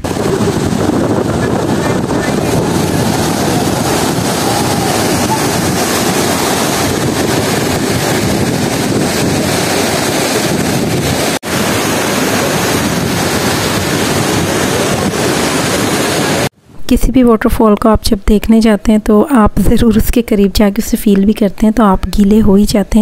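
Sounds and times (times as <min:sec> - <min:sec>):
waterfall rushing: 0:00.0 - 0:16.5.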